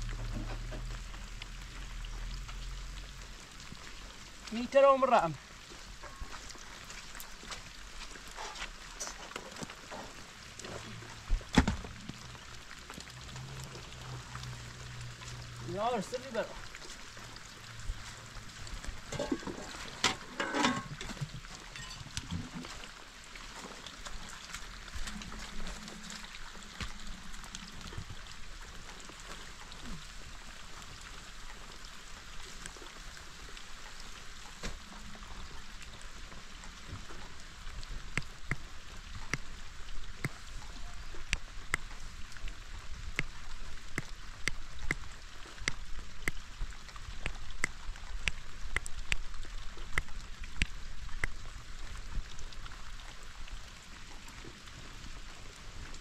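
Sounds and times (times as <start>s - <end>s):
steady rain: 0.0s - 56.0s
drops ticking on a surface: 38.0s - 39.5s, 41.2s - 51.5s.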